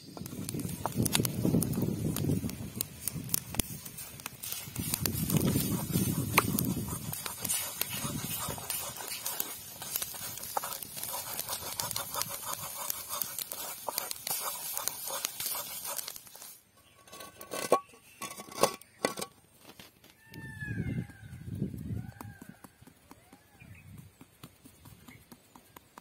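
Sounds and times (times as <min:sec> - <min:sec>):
egg sizzling in oil: 0:00.0 - 0:16.6
wooden spatula scraping pan: 0:04.4 - 0:19.3.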